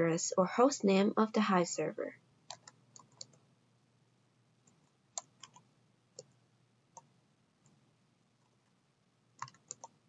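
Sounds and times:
keyboard key clicks: 0:09.4 - 0:10.0.

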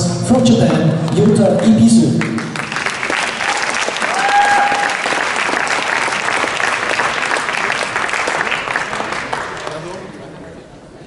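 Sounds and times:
audience applauding: 0:02.1 - 0:10.4
high-pitched cheer: 0:03.3 - 0:08.9.

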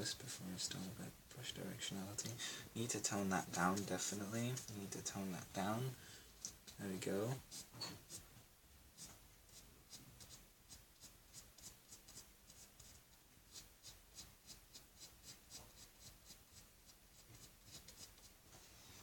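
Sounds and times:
paintbrush strokes on canvas: 0:09.0 - 0:19.0.

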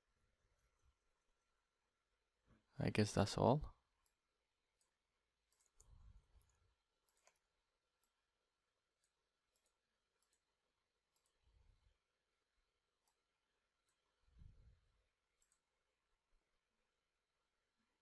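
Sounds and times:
computer mouse clicks: 0:04.8 - 0:08.2, 0:09.0 - 0:11.4, 0:15.3 - 0:15.8.

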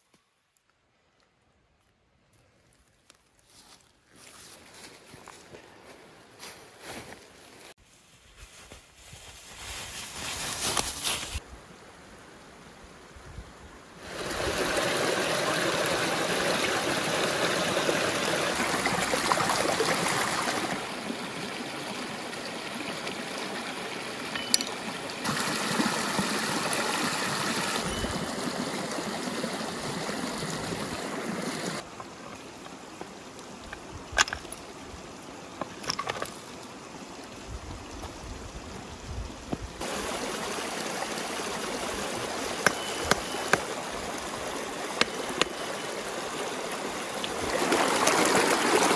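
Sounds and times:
stream running over rocks: 0:13.9 - 0:48.9.

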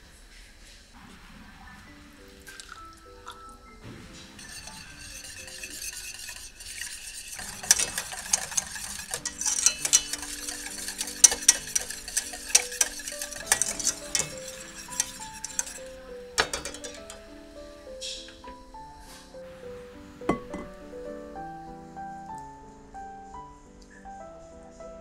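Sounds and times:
whisk scraping a metal saucepan: 0:04.2 - 0:17.2.

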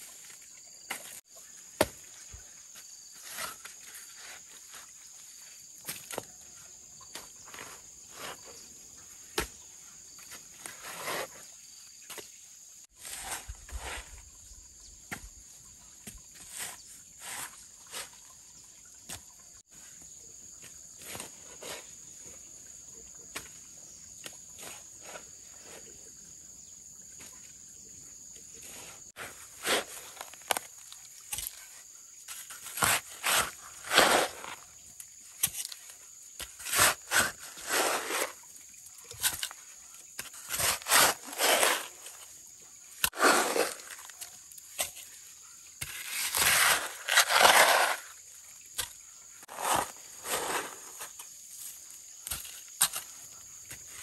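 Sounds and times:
hoe chopping and scraping soil: 0:00.9 - 0:02.4, 0:03.1 - 0:04.8, 0:07.1 - 0:11.4, 0:12.9 - 0:14.3, 0:16.0 - 0:18.1, 0:28.6 - 0:38.5, 0:39.1 - 0:45.2, 0:45.8 - 0:48.2, 0:48.8 - 0:54.0.

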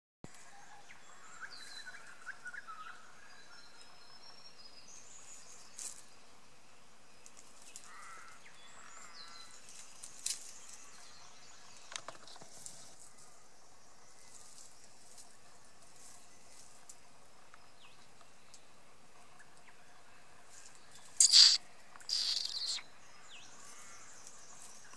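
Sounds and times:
wild bird calls: 0:07.7 - 0:09.6, 0:21.0 - 0:24.3
sharp clicks: 0:21.2 - 0:22.8
whistled bird phrases: 0:21.2 - 0:22.8.

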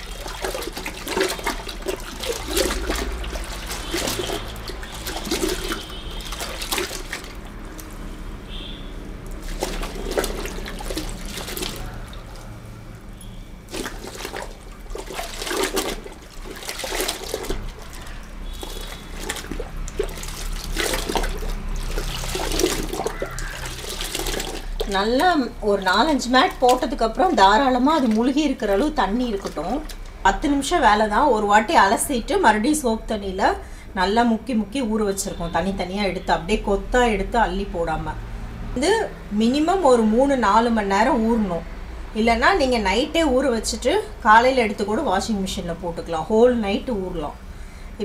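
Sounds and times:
water splashing and sloshing in bucket: 0:00.0 - 0:32.7.

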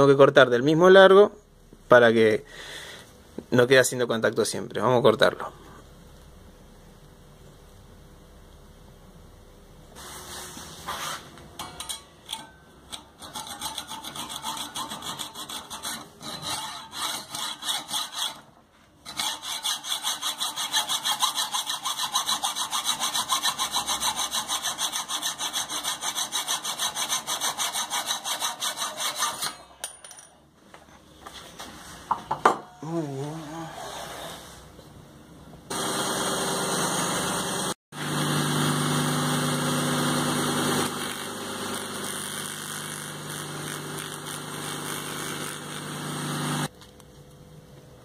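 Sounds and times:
hacksaw cutting through metal bolt: 0:11.9 - 0:18.5, 0:19.1 - 0:29.7.

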